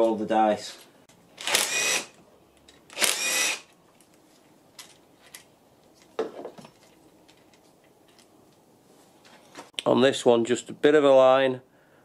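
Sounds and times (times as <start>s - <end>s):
cordless drill whirring: 1.4s - 2.2s, 2.9s - 3.7s.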